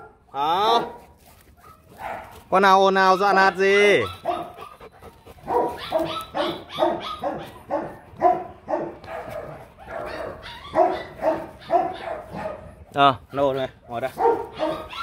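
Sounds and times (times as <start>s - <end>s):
dog barking: 0.8s - 2.4s, 4.0s - 12.8s, 14.1s - 15.0s.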